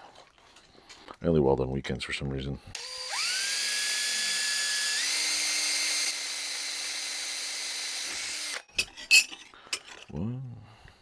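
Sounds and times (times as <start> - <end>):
drill drilling through metal: 2.8 - 8.7.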